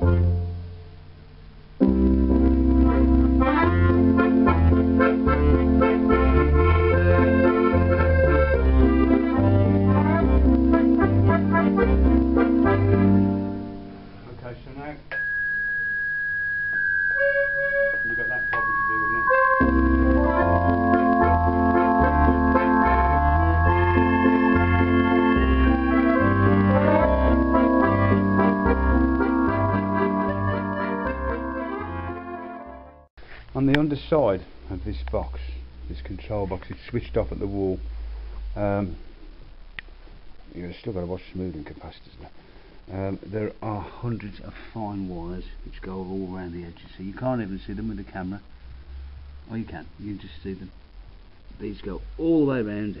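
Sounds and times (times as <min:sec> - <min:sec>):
electronic accordion playing chords: 0:00.0 - 0:00.4, 0:01.8 - 0:13.8, 0:17.6 - 0:33.1.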